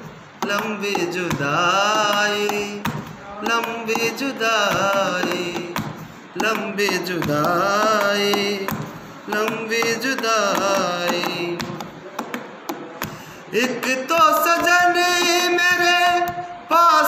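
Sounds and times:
man singing unaccompanied: 0:00.0 - 0:17.0
breaths between phrases: 0:13.1 - 0:13.5.

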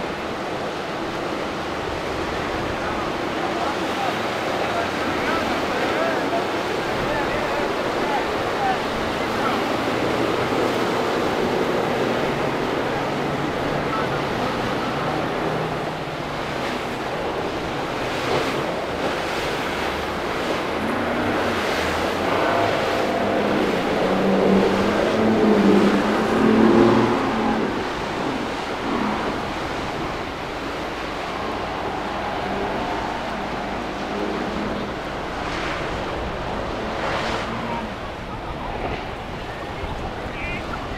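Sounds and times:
boat engines running: 0:00.0 - 0:40.9
surf: 0:00.0 - 0:40.9
wind: 0:00.0 - 0:40.9.

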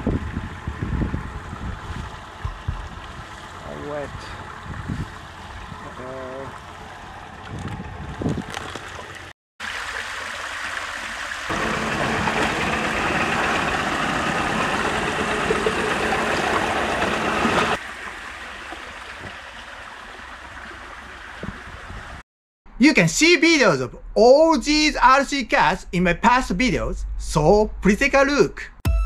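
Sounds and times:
creek water trickling over rocks: 0:01.3 - 0:11.8, 0:14.8 - 0:22.1
water spilling over rock ledge: 0:08.5 - 0:21.4.

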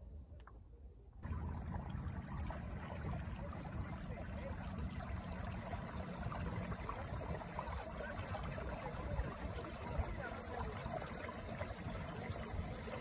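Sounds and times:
low steady rumble: 0:01.2 - 0:13.0
water lapping and trickling: 0:01.2 - 0:13.0.

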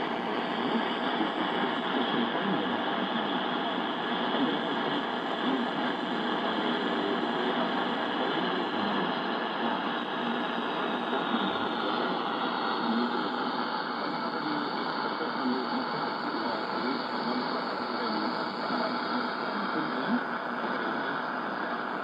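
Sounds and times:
faint radio broadcast audio: 0:00.0 - 0:22.0
radio static hiss: 0:00.0 - 0:22.0.

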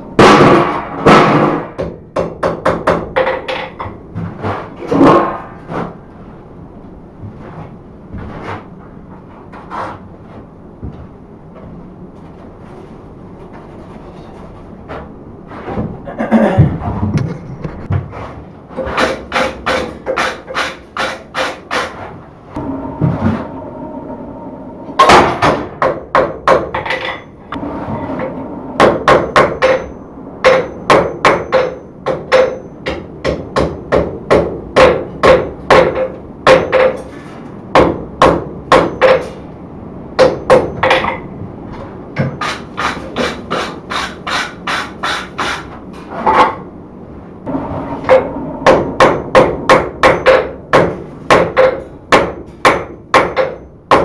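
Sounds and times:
hammer striking hot steel on anvil: 0:28.8 - 0:37.1, 0:37.8 - 0:39.3, 0:48.0 - 0:54.0.

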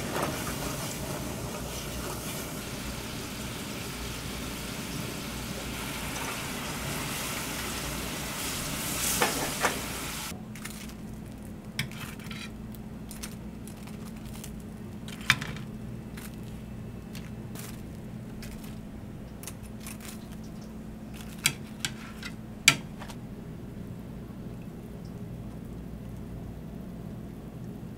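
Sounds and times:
sauce sizzling and bubbling: 0:00.0 - 0:10.4
dishes and utensils clinking: 0:11.8 - 0:12.6, 0:21.2 - 0:23.2.

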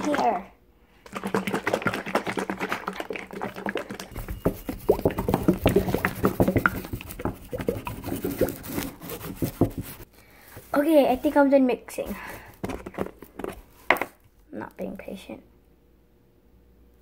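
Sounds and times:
liquid sloshing in jar: 0:01.0 - 0:10.1
plastic jar knocking: 0:01.1 - 0:10.0.

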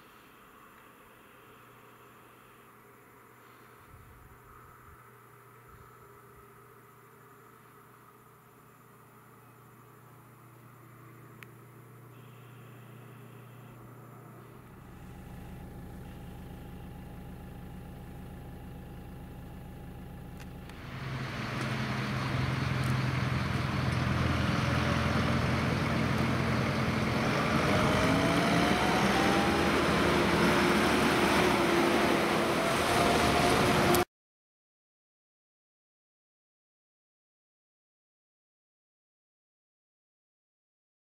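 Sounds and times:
quiet steady hum: 0:00.0 - 0:20.9
rising whine: 0:10.5 - 0:34.1
tractor engine approaching: 0:13.4 - 0:34.1.

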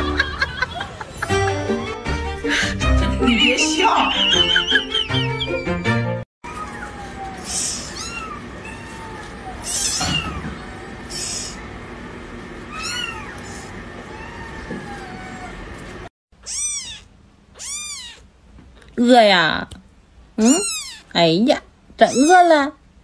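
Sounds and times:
kittens meowing: 0:06.5 - 0:11.6, 0:12.7 - 0:15.8, 0:16.4 - 0:18.3, 0:20.4 - 0:21.1, 0:22.0 - 0:22.5.

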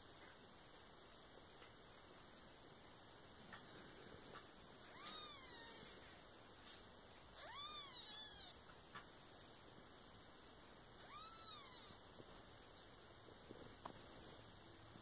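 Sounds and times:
kitten mewing: 0:04.8 - 0:05.9, 0:07.4 - 0:08.6, 0:11.0 - 0:12.0.

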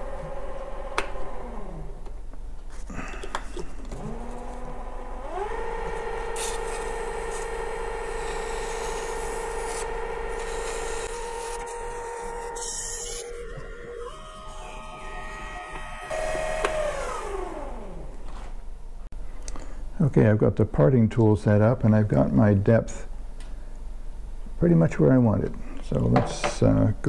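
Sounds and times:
lathe motor whine: 0:00.0 - 0:02.1, 0:03.8 - 0:18.5.

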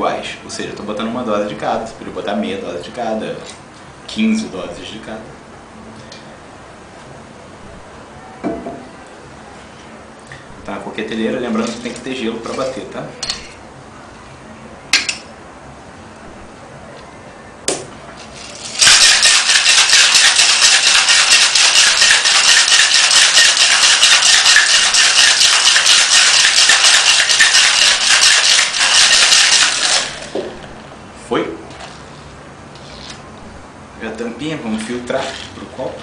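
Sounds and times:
ice rattling in metal shaker: 0:18.2 - 0:30.4, 0:35.2 - 0:35.5
metal shaker clicks: 0:18.3 - 0:30.3.

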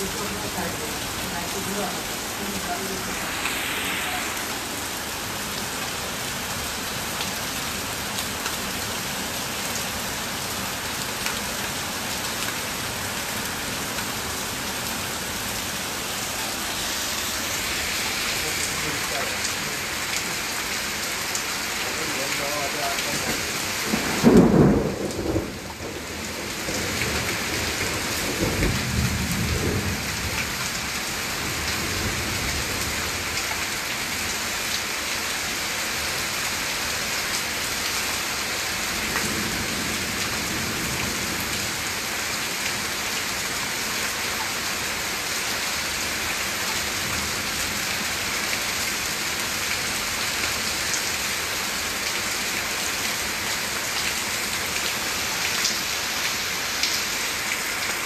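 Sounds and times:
thunder rumble: 0:00.0 - 0:06.5, 0:23.1 - 0:32.9
heavy rain pouring: 0:00.0 - 0:58.0.

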